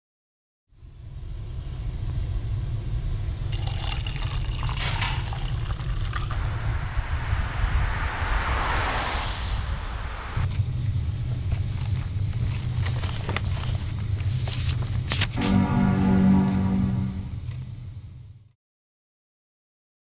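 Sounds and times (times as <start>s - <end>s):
steady low rumble: 0.8s - 18.4s
liquid pouring into a glass: 3.5s - 6.7s
hiss: 7.0s - 10.5s.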